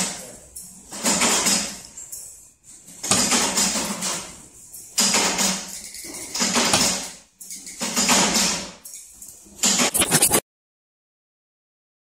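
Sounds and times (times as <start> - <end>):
press metallic clatter and hiss: 2.8 - 10.4.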